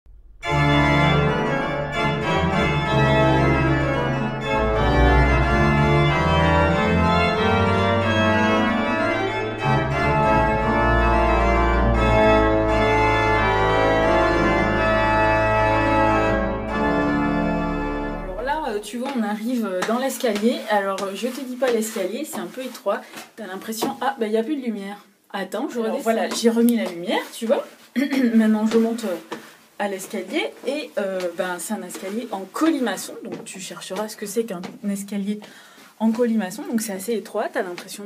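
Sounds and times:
organ music: 0.4 - 18.5.

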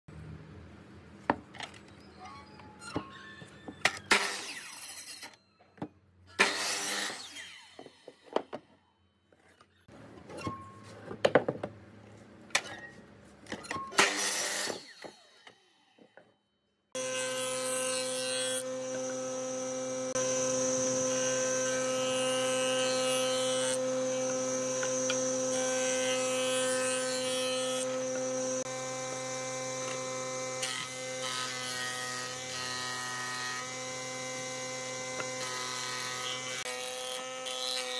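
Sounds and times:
planer motor humming: 18.6 - 31.2.

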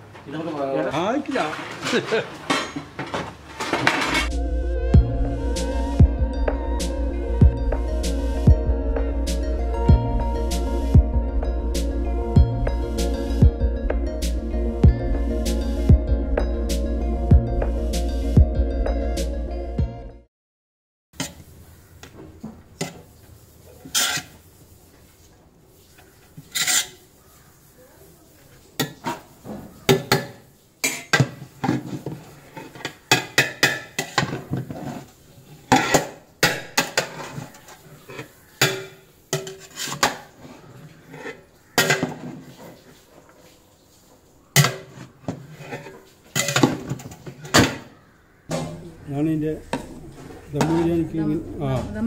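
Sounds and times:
metal utensil scraping a pot: 3.6 - 4.4, 21.2 - 21.5, 23.7 - 24.4, 26.0 - 27.2, 28.8 - 43.0, 44.6 - 48.0.

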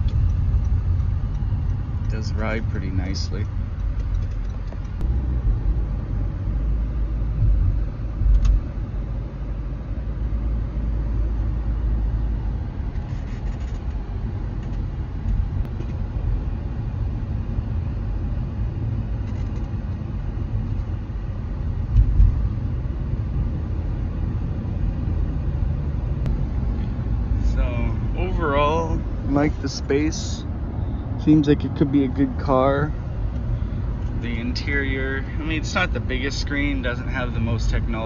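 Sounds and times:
road and tyre rumble: 0.0 - 38.0
car bumps: 21.9 - 22.5.

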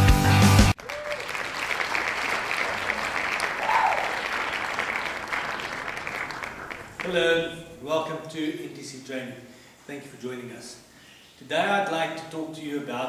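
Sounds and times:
rock music with a beat: 0.0 - 0.7
audience applauding: 0.6 - 7.6.

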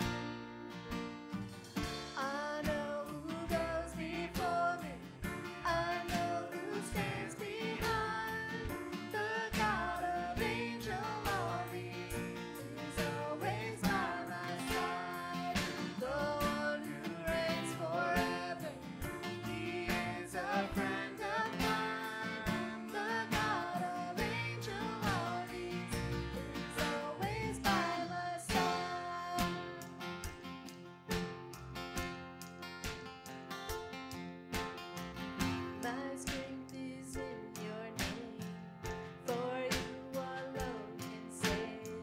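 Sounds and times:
grand piano: 0.0 - 42.0
strummed acoustic guitar: 0.0 - 42.0
voices singing: 5.7 - 29.6
electric bass: 7.8 - 28.0.

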